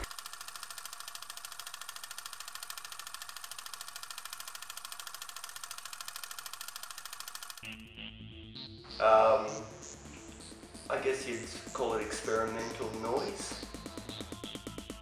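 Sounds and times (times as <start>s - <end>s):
film projector running: 0.0s - 7.8s.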